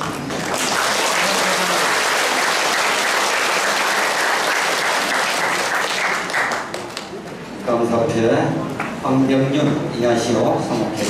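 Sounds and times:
crowd applauding: 0.0s - 7.2s.

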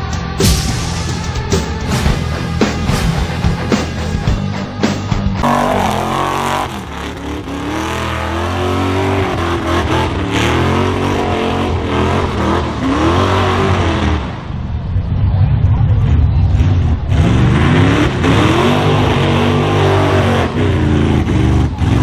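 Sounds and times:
pickup engine revving: 1.9s - 14.6s, 16.5s - 22.0s.

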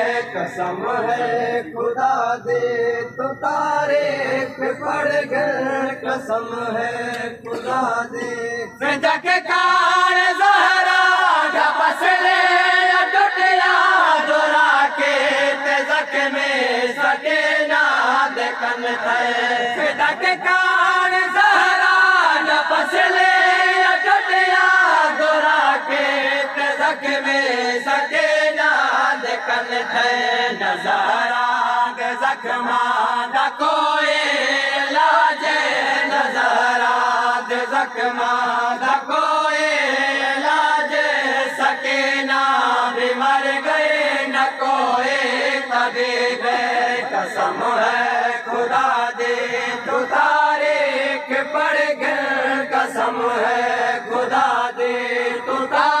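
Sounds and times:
men chanting a lament: 0.0s - 56.0s.

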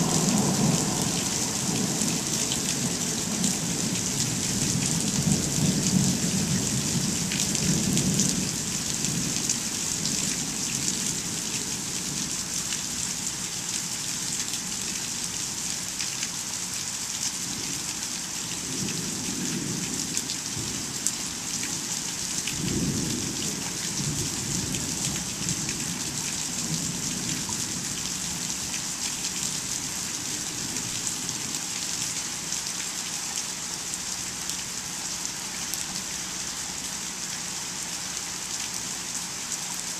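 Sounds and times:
thunder rumbling: 0.0s - 6.3s
steady rain falling: 0.0s - 39.9s.

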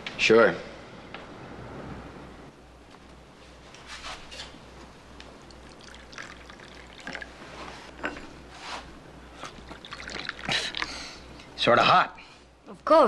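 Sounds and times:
coffee pouring into cups: 5.3s - 8.0s, 9.4s - 11.5s.

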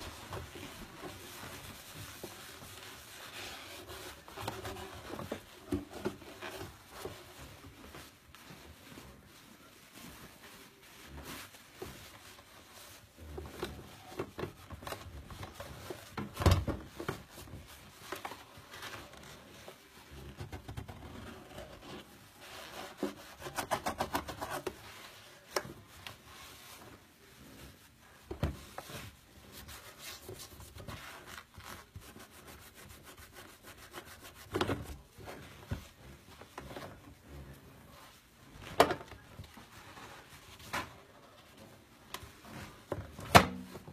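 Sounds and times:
sponge scrubbing plastic: 0.0s - 14.4s, 21.4s - 40.6s.

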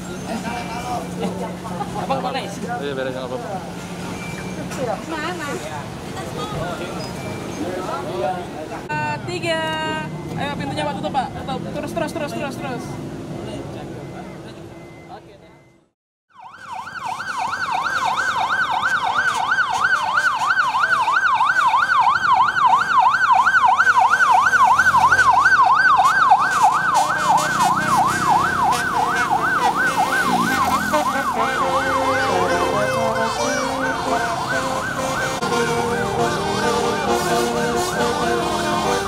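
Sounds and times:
siren yelping: 16.3s - 39.0s
sustained notes: 27.1s - 39.0s.

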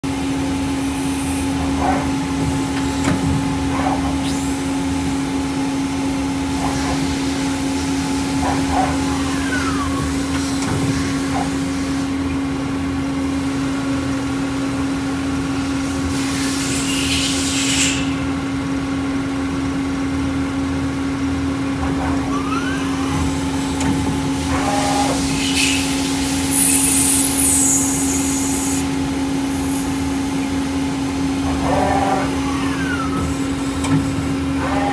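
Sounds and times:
lathe machine hum: 19.0s - 34.9s
coolant hiss bursts: 25.2s - 30.0s.

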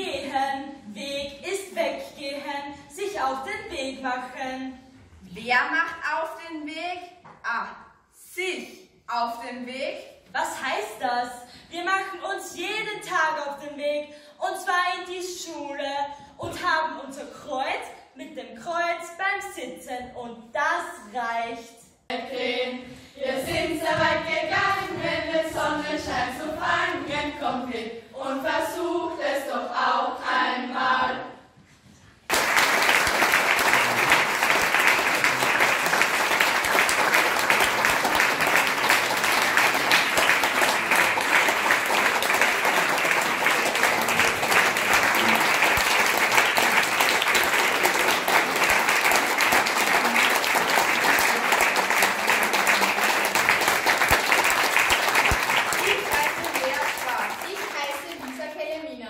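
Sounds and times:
children singing together: 22.1s - 31.5s
audience applause: 32.3s - 58.4s.

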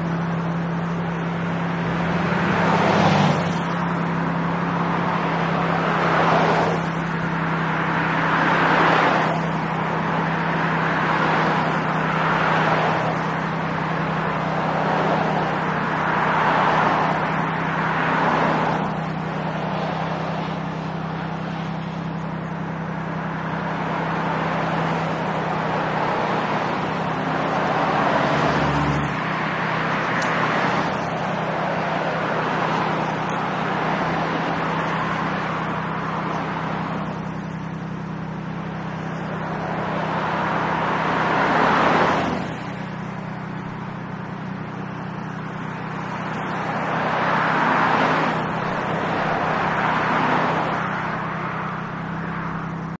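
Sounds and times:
cars passing by: 0.0s - 52.9s.

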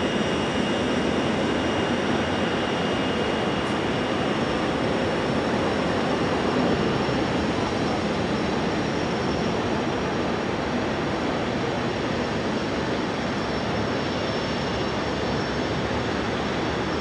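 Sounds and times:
jet engines rushing: 0.0s - 17.0s.

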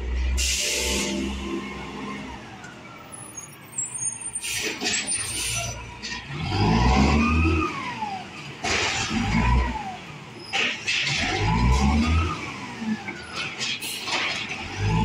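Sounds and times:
diesel truck engine revving: 0.0s - 3.2s, 4.6s - 13.4s, 14.1s - 15.0s
hiss and clatter: 13.4s - 14.6s.

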